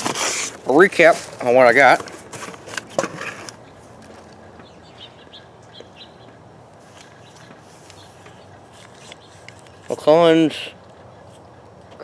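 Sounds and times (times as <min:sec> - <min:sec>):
faint outdoor ambience: 0:00.0 - 0:12.0
high bird chirps: 0:04.6 - 0:06.4.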